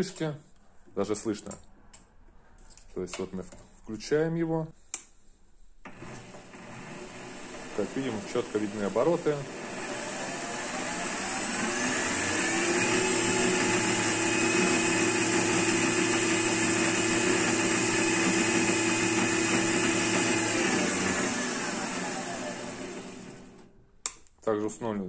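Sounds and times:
lathe motor whine: 5.9 - 23.7.

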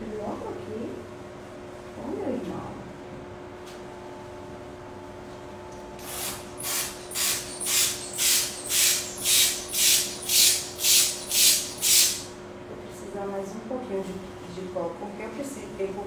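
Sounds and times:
hand pump air puffs: 6.0 - 12.3.

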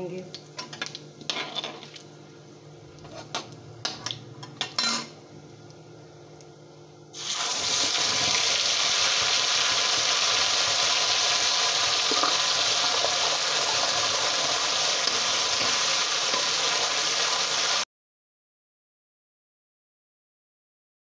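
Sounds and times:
paste sizzling in hot oil: 7.1 - 17.8.

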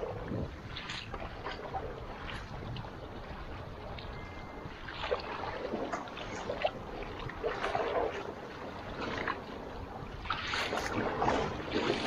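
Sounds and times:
water washing along raft: 0.0 - 12.0
wind rumble on microphone: 0.0 - 12.0
paddles splashing into water: 4.7 - 12.0.

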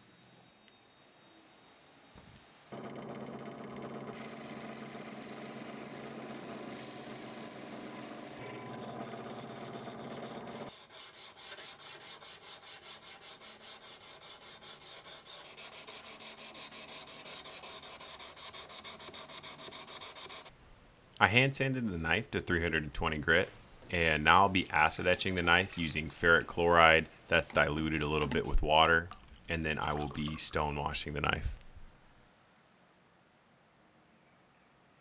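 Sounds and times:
drill press drilling steel: 2.7 - 10.7
sandpaper rubbing steel: 10.7 - 20.5, 24.0 - 26.1.

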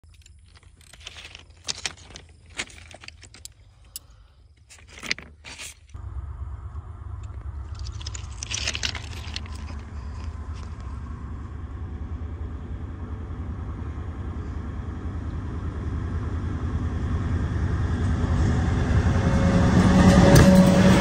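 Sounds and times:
approaching train rumble: 5.9 - 21.0.

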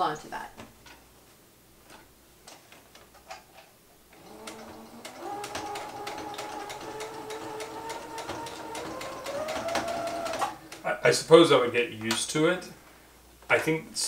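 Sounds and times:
sewing machine stitching: 4.1 - 11.0.

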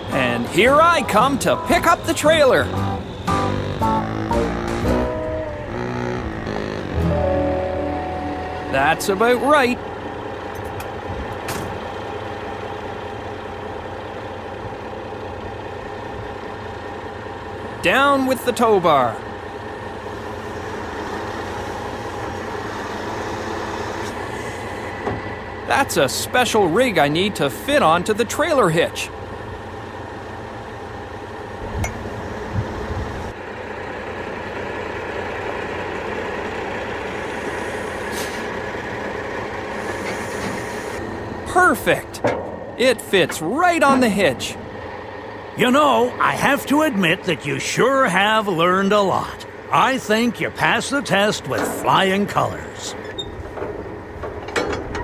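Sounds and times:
truck engine idling: 0.0 - 55.0
metal knock: 42.2 - 42.8.

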